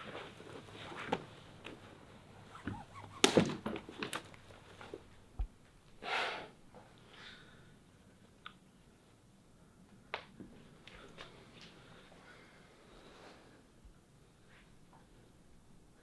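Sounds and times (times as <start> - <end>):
clothing rustling: 0.0 - 2.1
sharp crack with clicks: 3.2 - 4.3.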